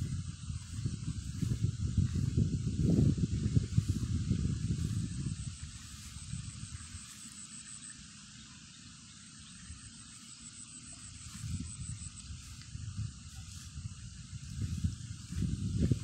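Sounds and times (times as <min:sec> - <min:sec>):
wind rumble on microphone: 0:00.0 - 0:07.4, 0:10.9 - 0:16.0
high insect drone: 0:00.0 - 0:16.0
steady hiss: 0:00.0 - 0:16.0.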